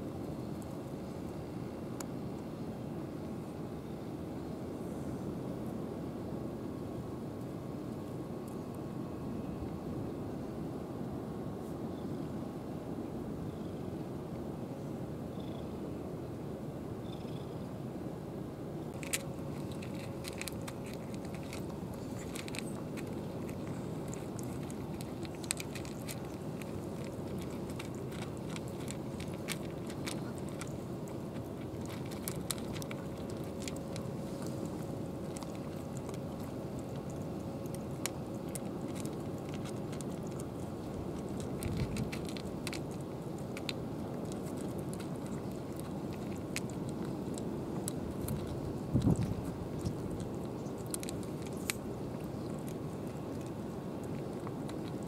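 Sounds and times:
cats chewing and crunching food: 0:00.0 - 0:03.6, 0:18.9 - 0:55.0.

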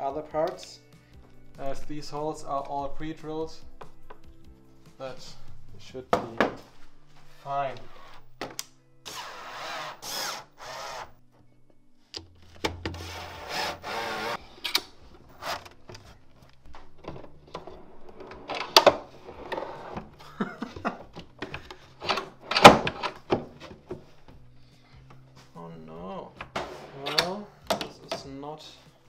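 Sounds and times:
cordless drill driving screws: 0:09.1 - 0:11.2, 0:13.0 - 0:14.4.

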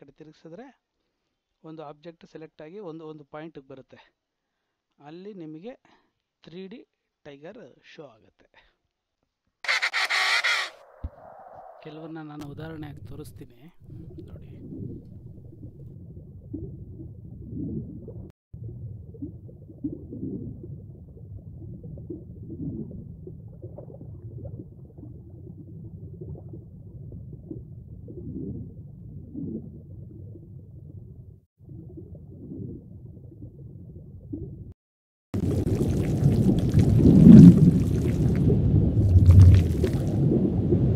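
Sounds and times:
underwater bubbling and gurgling: 0:12.4 - 0:34.7, 0:35.4 - 0:40.9.

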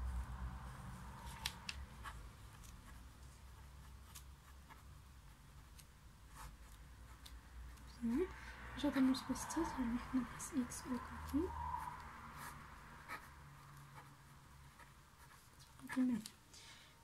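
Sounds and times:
pen scratching on paper: 0:01.2 - 0:08.2, 0:12.3 - 0:16.4.

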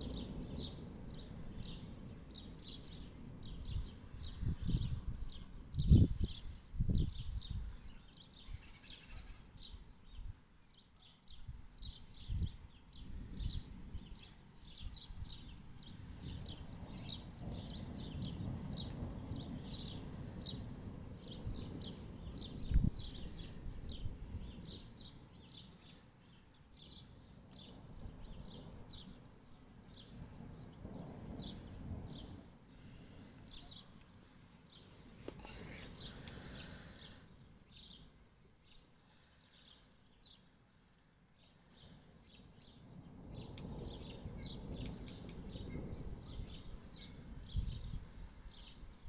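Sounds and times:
distant thunder rumbling: 0:00.0 - 0:07.8, 0:12.3 - 0:37.0, 0:42.2 - 0:49.0
small bird chirping: 0:01.6 - 0:29.1.

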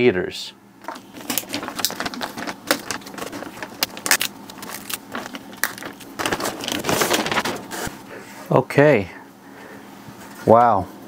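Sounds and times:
plastic bag crinkling: 0:00.8 - 0:07.9.

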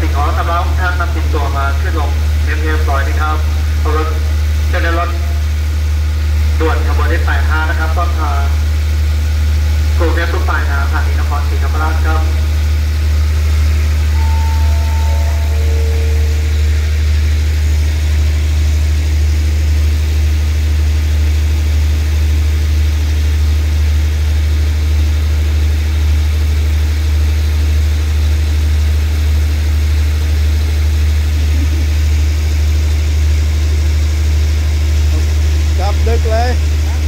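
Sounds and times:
diesel train engine idling: 0:00.0 - 0:37.0
descending tones: 0:14.1 - 0:18.7.

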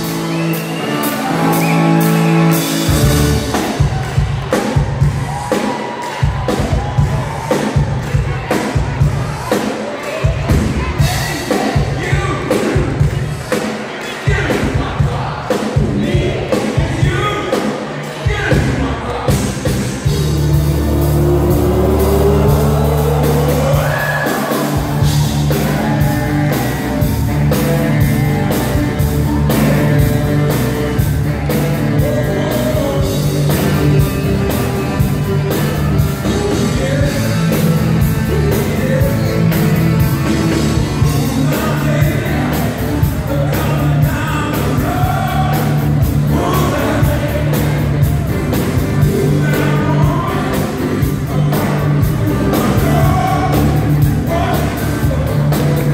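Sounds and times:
electric bass: 0:00.0 - 0:05.5, 0:18.5 - 0:55.9
drums: 0:00.0 - 0:55.9
man singing: 0:18.3 - 0:26.7, 0:31.3 - 0:48.2, 0:48.8 - 0:55.9.

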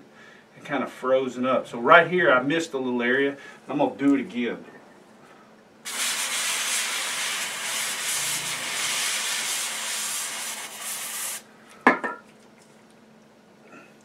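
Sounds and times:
aerosol can spraying hiss: 0:05.9 - 0:11.4.

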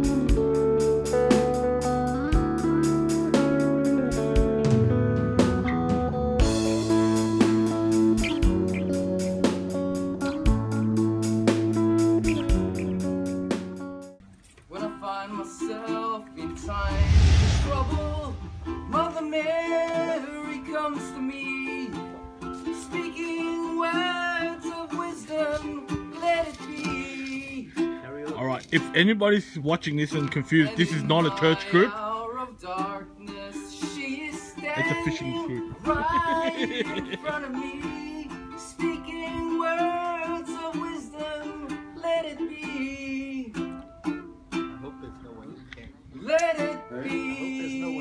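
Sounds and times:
ukulele chords: 0:00.0 - 0:14.1, 0:18.6 - 0:29.0, 0:32.1 - 0:45.0
person singing: 0:14.8 - 0:22.0, 0:22.7 - 0:28.0, 0:30.6 - 0:43.7, 0:46.3 - 0:48.0.

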